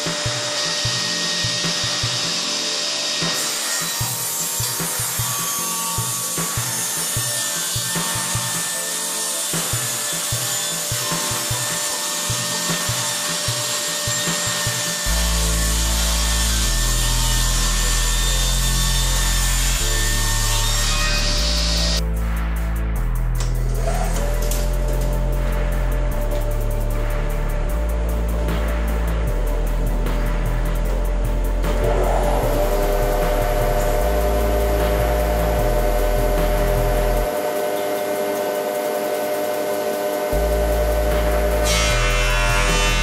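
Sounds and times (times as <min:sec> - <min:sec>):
table saw cutting wood: 0:00.0 - 0:22.1, 0:23.4 - 0:43.0
music with steady bass: 0:09.5 - 0:43.0.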